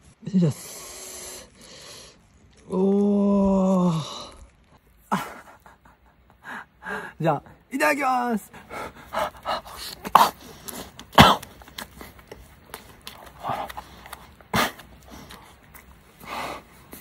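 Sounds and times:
breathy mouth sounds: 8.8s - 17.0s
crunchy bites and chewing: 9.4s - 17.0s.

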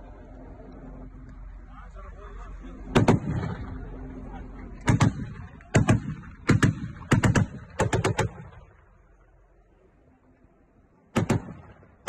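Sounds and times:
gunfire volleys: 2.9s - 3.9s, 4.8s - 8.7s, 11.1s - 12.0s.

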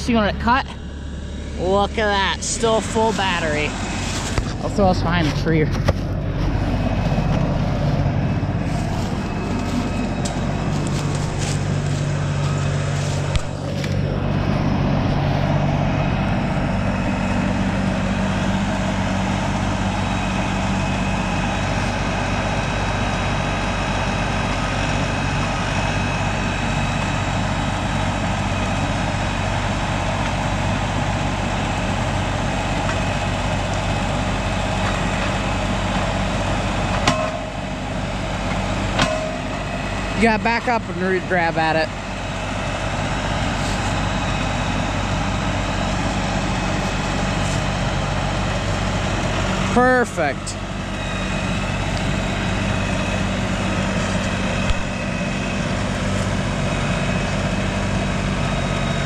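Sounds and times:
tractor diesel engine running: 0.0s - 59.0s.

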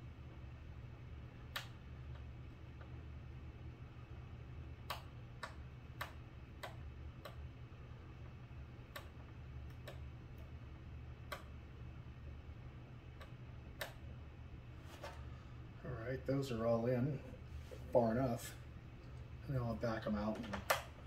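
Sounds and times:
steady low hum: 0.0s - 21.0s.

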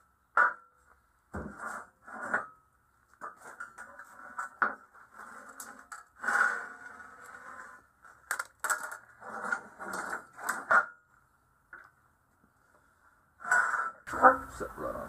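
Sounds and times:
metal scraping on metal: 1.4s - 2.6s, 3.2s - 7.9s, 9.1s - 10.9s, 13.4s - 14.6s.

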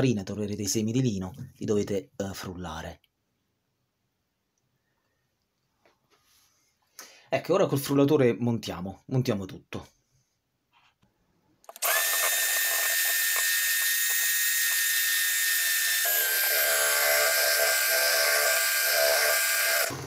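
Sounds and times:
hand mixer motor whine: 11.7s - 20.0s.

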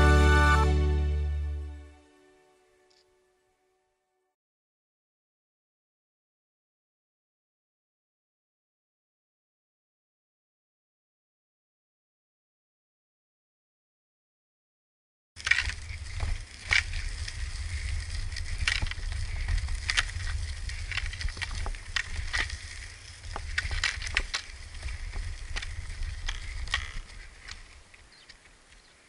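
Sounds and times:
stones and pole tips clicking: 15.4s - 28.9s
skates rolling over gravel: 15.4s - 29.0s.

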